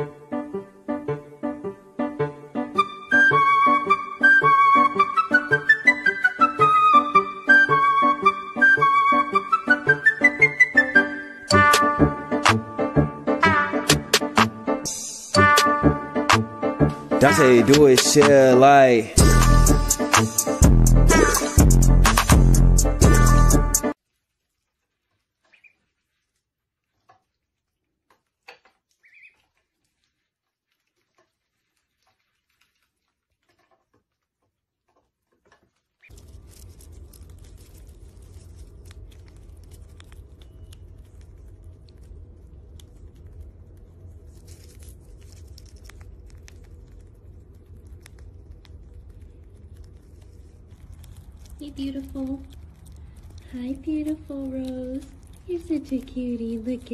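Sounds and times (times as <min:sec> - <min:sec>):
squirrel nibbling nut: 0:16.9 - 0:56.9
duckling peeping: 0:25.4 - 0:26.2, 0:28.9 - 0:29.8
low background hiss and hum: 0:36.2 - 0:56.9.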